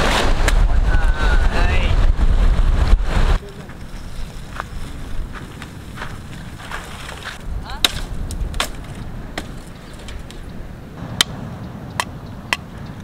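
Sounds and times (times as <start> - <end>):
machete chopping wood: 7.8 - 9.6.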